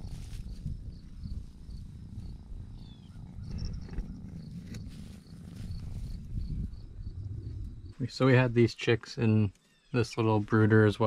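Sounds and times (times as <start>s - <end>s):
insect chirping: 0.0s - 8.1s
low rumbling noise: 0.0s - 8.7s.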